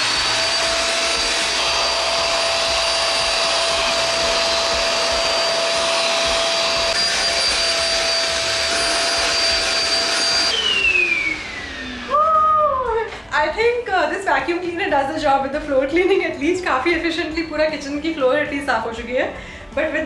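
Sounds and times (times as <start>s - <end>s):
vacuum motor winding down: 0.0s - 13.3s
vacuum cleaner running: 0.0s - 13.5s.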